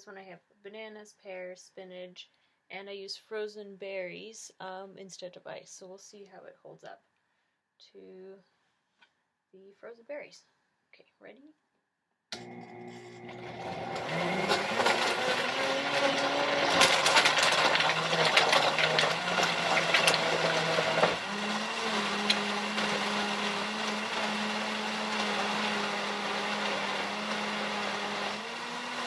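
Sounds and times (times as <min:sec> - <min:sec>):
blender blades crackling through ice: 0:12.4 - 0:29.0
blender motor whirring: 0:12.4 - 0:29.0.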